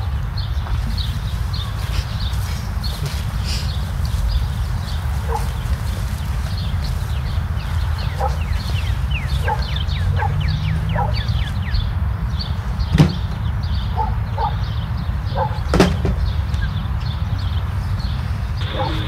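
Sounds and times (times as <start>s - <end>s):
birds chirping: 0.0s - 19.0s
sharp knocks: 15.7s - 16.2s
steady low rumble: 16.4s - 19.0s.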